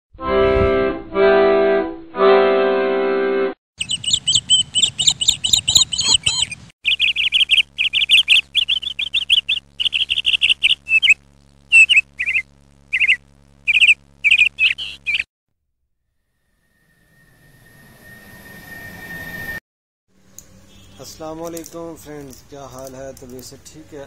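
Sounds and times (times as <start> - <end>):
organ-like tune: 0.2 - 15.3
birds chirping in trills: 3.8 - 15.3
steady low hum: 3.8 - 15.3.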